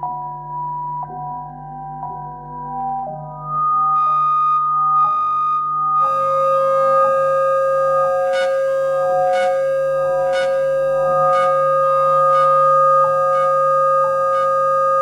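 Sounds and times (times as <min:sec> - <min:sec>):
synthesizer drone: 0:03.0 - 0:15.0
soft synth pulse: 0:06.0 - 0:15.0.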